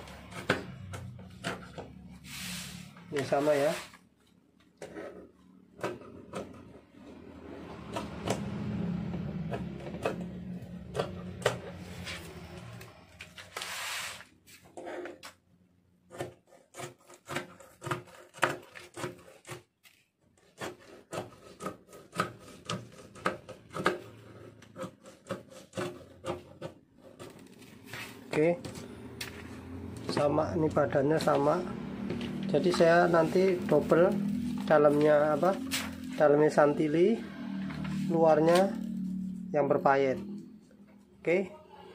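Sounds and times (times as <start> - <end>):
cloth and paper rubbing: 2.2 - 4.0, 13.4 - 14.6, 27.6 - 28.3.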